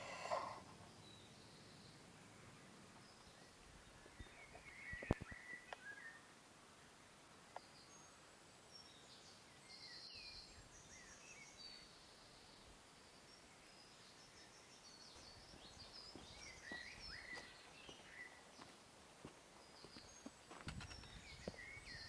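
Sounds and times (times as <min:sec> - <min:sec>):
birds chirping and whistling: 0:00.0 - 0:01.8, 0:04.2 - 0:06.2, 0:15.1 - 0:18.4, 0:20.9 - 0:22.0.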